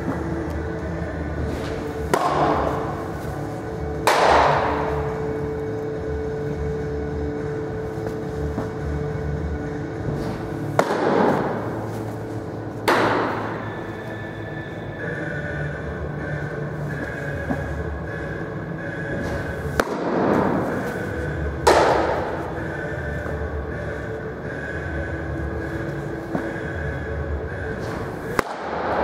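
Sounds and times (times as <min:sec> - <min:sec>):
steady hum: 0:00.0 - 0:29.0
baseballs smacking into mitt: 0:01.5 - 0:03.4, 0:04.0 - 0:04.9, 0:10.2 - 0:12.1, 0:12.8 - 0:13.6, 0:19.2 - 0:21.0, 0:21.6 - 0:22.5, 0:27.8 - 0:29.0.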